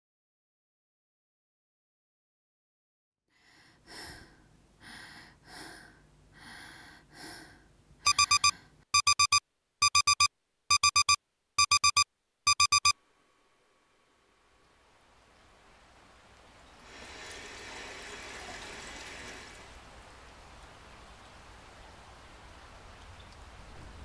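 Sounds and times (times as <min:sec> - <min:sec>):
soft breaths: 0:03.3 - 0:07.8
digital alarm clock beeping: 0:08.0 - 0:13.0.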